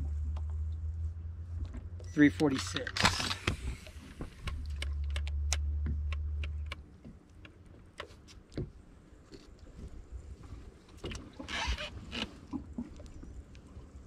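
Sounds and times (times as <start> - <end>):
sharp clicks and knocks: 2.5 - 8.8.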